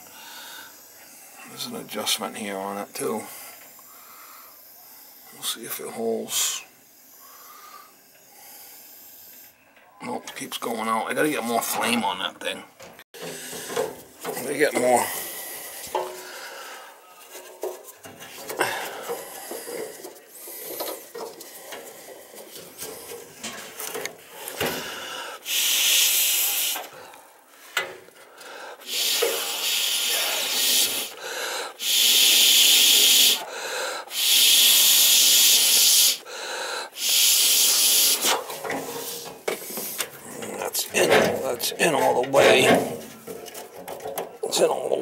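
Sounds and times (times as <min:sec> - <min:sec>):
faint rustling and scraping: 0:12.8 - 0:24.6, 0:38.2 - 0:45.0
compressed air blasts: 0:18.3 - 0:27.0, 0:28.8 - 0:36.3, 0:36.9 - 0:40.1.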